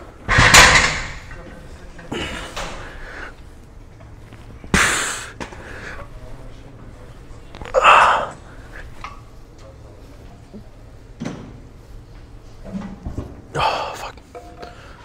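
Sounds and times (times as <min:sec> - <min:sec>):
man straining exhalations: 0:13.5 - 0:14.2.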